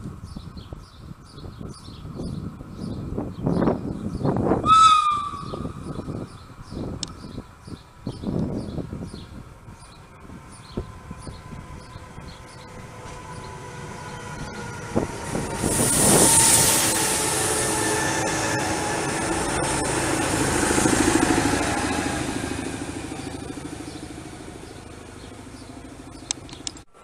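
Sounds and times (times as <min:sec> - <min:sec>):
electric train passing: 0:03.8 - 0:27.0
strong hiss: 0:15.6 - 0:17.8.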